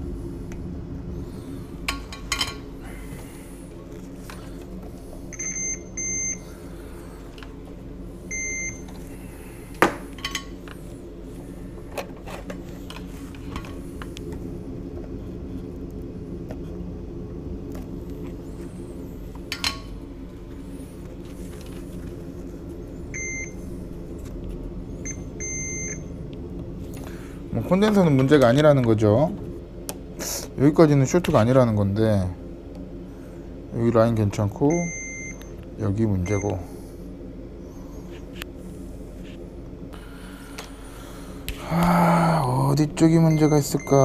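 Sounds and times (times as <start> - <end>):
steady equipment hum: 0.0 - 44.0
multimeter beeps: 5.3 - 6.4, 8.3 - 8.9, 23.1 - 23.6, 25.0 - 26.1, 34.7 - 35.5, 36.2 - 36.6, 43.2 - 44.0.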